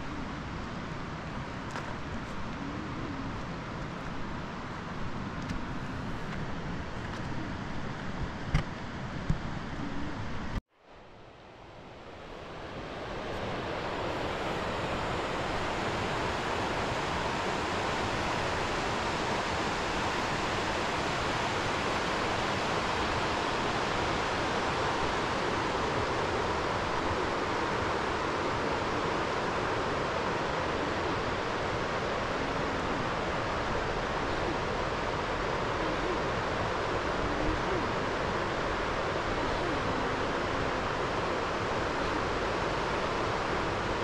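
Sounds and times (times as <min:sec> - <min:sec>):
river water rushing: 0:12.0 - 0:44.0.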